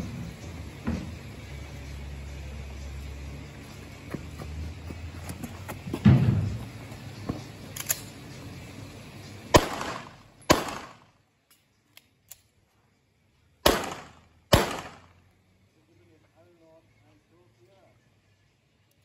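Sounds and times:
handgun shots with echo: 0:09.6 - 0:11.0, 0:13.6 - 0:15.1.

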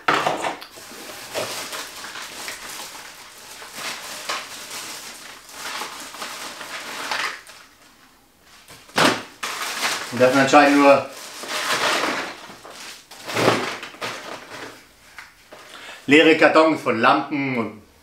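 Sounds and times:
small hard items clattering: 0:00.0 - 0:07.6, 0:08.9 - 0:14.8
plastic bag crinkling: 0:00.0 - 0:15.8.

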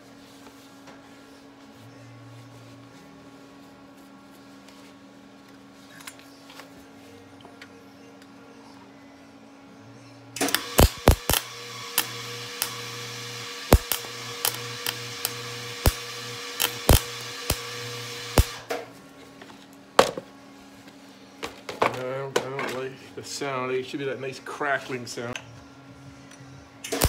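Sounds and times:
welder arc hissing and popping: 0:10.4 - 0:18.7.

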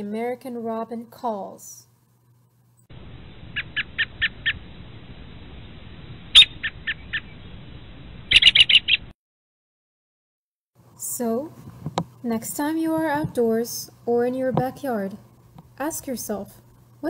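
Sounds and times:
faint recording hiss: 0:00.0 - 0:08.3, 0:10.8 - 0:17.0
robin calling: 0:03.5 - 0:04.6, 0:06.3 - 0:07.4, 0:08.3 - 0:09.1.

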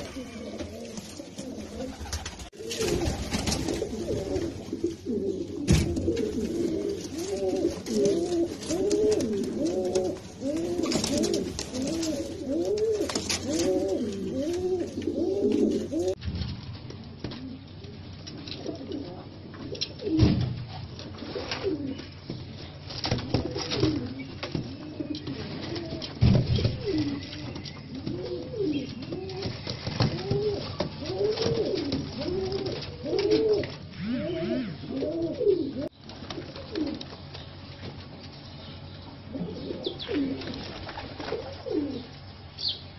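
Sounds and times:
pigeons cooing: 0:00.0 - 0:16.2, 0:21.2 - 0:22.1, 0:23.2 - 0:37.3, 0:39.2 - 0:42.2.

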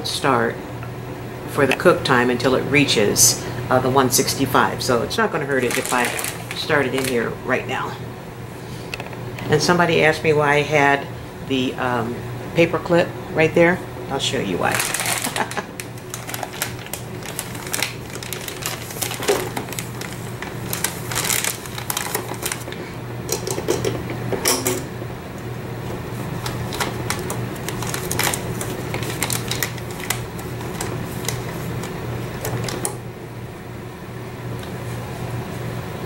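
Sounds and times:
immersion circulator humming: 0:00.0 - 0:36.0
plastic bag rustling and crinkling: 0:05.4 - 0:07.4, 0:14.5 - 0:23.0, 0:26.2 - 0:32.8.

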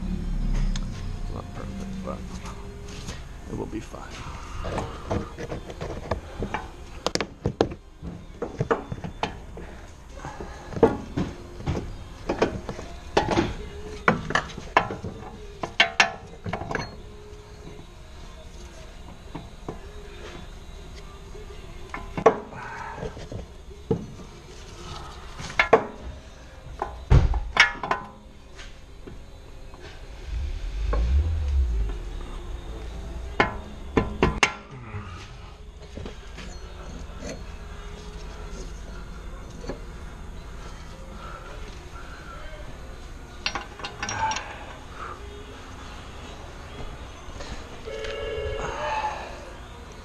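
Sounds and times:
low rumble: 0:00.0 - 0:03.5, 0:30.0 - 0:34.4.

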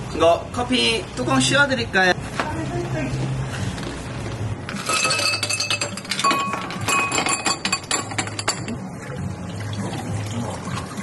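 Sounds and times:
ice cubes clinking into glasses: 0:04.7 - 0:08.8.

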